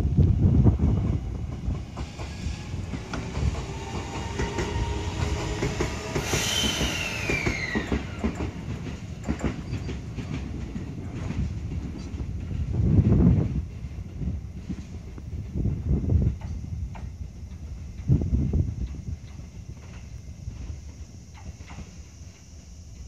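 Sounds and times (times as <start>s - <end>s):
train rumbling: 0.0s - 23.0s
wheels clicking over rail joints: 1.1s - 12.7s
high squeal falling in pitch: 6.0s - 8.2s.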